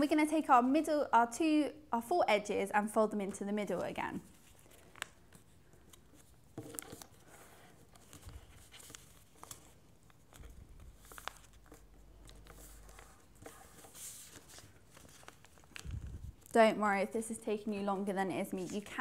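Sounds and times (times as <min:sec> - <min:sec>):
paper being folded by hand: 0:03.2 - 0:16.6
faint low rumble: 0:15.8 - 0:16.5.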